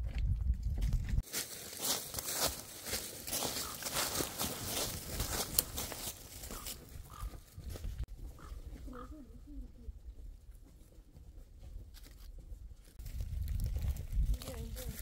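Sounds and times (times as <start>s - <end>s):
footsteps crunching dry leaves: 0.8s - 8.0s, 13.0s - 15.0s.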